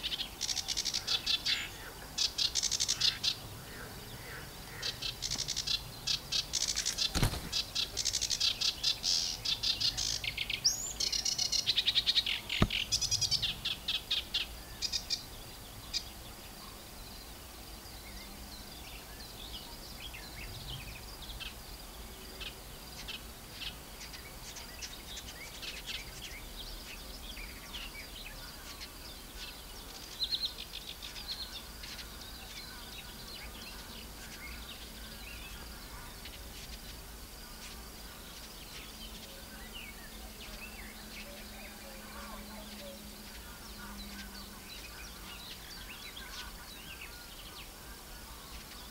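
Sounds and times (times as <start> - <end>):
soft scattered bird notes: 0.0 - 48.9
warbler chattering: 0.0 - 48.9
bird pecking microphone thumps: 12.6 - 12.9.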